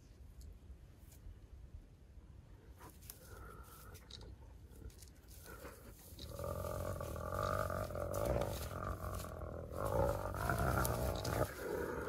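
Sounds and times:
hyena growling: 0:05.4 - 0:12.0.

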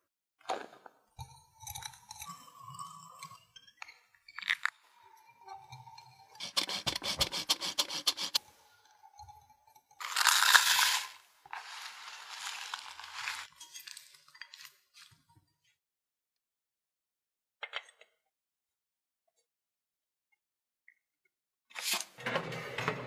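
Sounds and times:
almond flakes scraping against glass: 0:09.9 - 0:14.1
almonds poured rattling into bowl: 0:10.0 - 0:14.0.

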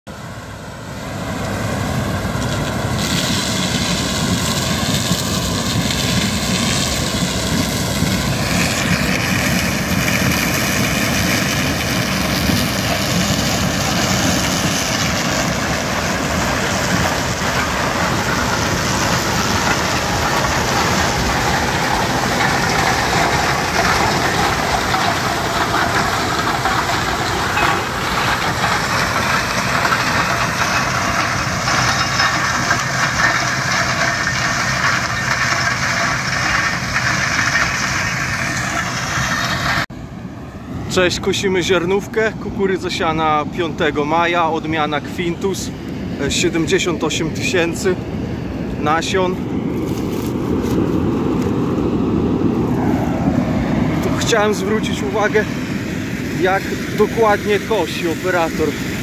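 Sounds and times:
combine harvester running: 0:00.1 - 0:59.0.

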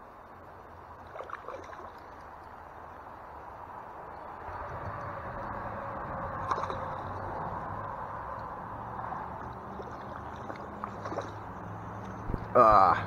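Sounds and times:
stream water flowing: 0:00.0 - 0:13.0
fish splashing at surface: 0:01.0 - 0:02.2, 0:06.3 - 0:07.4, 0:09.3 - 0:11.6.

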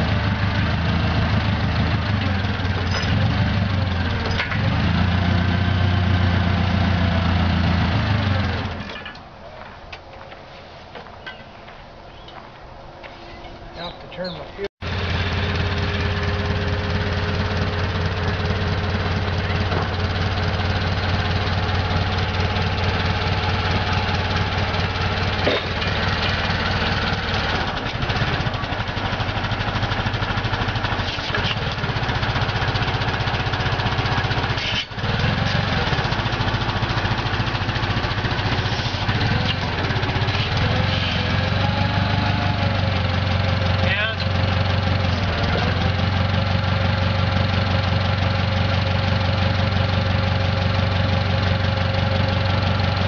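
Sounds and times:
forklift engine running: 0:00.0 - 0:09.2, 0:14.8 - 0:53.0.

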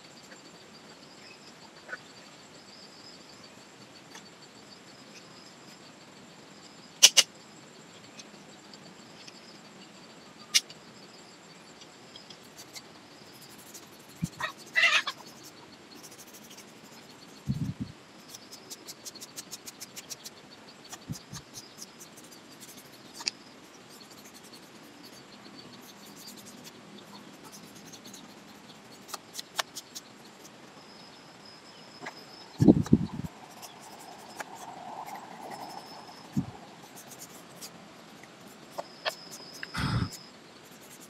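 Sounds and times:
high insect drone: 0:00.0 - 0:41.0
animal call: 0:14.2 - 0:15.3.

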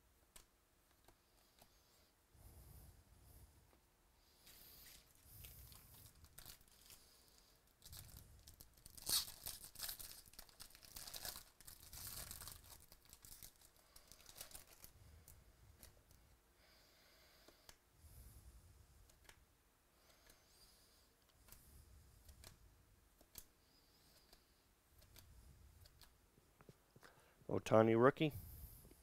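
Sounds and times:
foil wrapper crinkling: 0:04.8 - 0:07.1, 0:07.8 - 0:14.9
foil wrapper tearing: 0:07.8 - 0:14.9.

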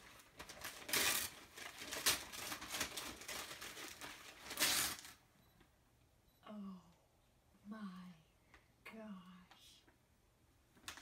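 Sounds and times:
paper rustling: 0:00.0 - 0:05.2
wrapping paper tearing: 0:00.0 - 0:05.2.

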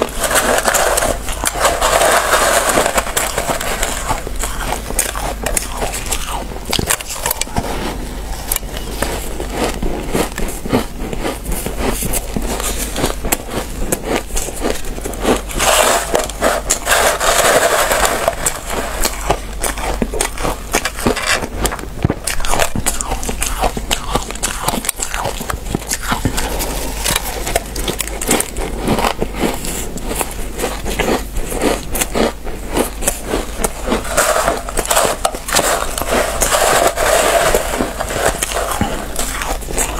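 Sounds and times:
ice squeaking and crackling: 0:00.0 - 0:07.6, 0:33.4 - 0:39.9
shaved ice crunching when chewed: 0:00.0 - 0:39.9.

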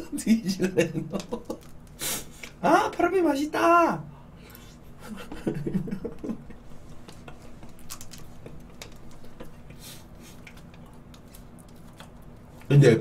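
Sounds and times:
person laughing: 0:00.0 - 0:01.7, 0:04.9 - 0:07.8.

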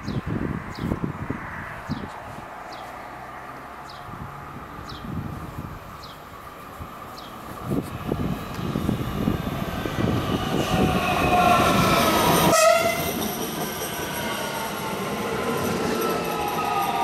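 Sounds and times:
train wheels rumbling on rails: 0:04.3 - 0:17.0
train horn: 0:10.7 - 0:13.2.

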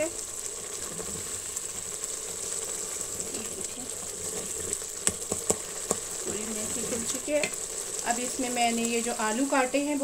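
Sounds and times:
sauce bubbling and sizzling: 0:00.0 - 0:10.0
wooden spoon knocking on pot: 0:05.0 - 0:07.6.

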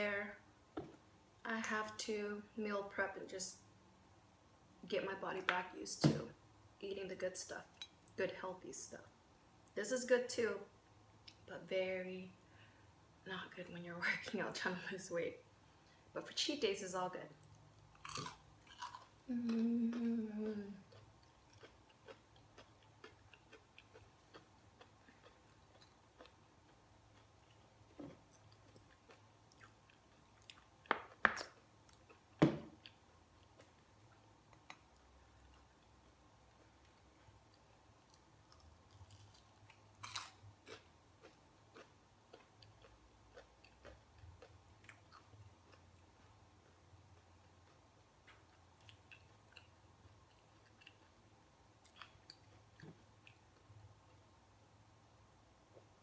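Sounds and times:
quiet chewing: 0:17.4 - 0:54.3
person humming: 0:19.3 - 0:20.9.

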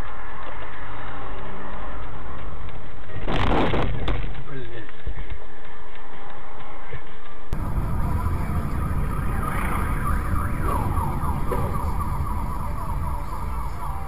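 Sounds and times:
high wavering tones: 0:07.6 - 0:14.0
vehicle rumble on road: 0:07.6 - 0:14.0.

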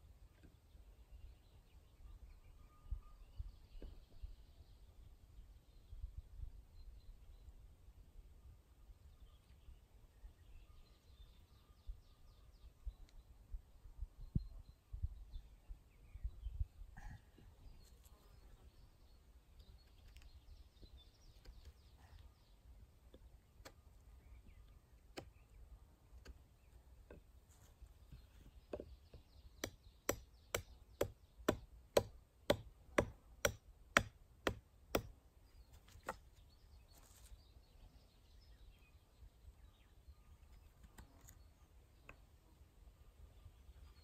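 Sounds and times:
chopping strikes into wood: 0:29.6 - 0:35.1.

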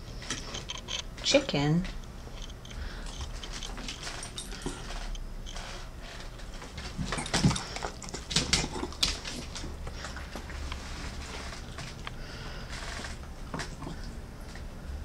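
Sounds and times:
dog claws clicking on tiles: 0:06.6 - 0:12.0.

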